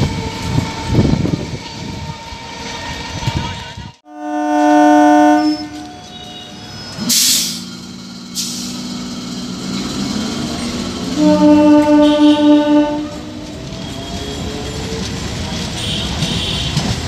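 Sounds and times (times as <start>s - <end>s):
train horn: 4.0s - 6.6s, 11.1s - 13.4s, 15.8s - 16.8s
air hissing: 7.0s - 9.1s.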